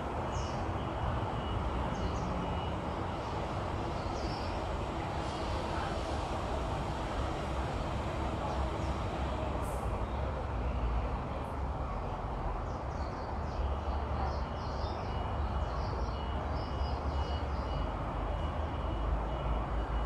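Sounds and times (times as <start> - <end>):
distant traffic rumble: 0.0 - 20.0
small birds chirping: 0.3 - 0.6, 3.2 - 4.7
reversing alarm beeping: 0.6 - 3.6, 15.2 - 20.0.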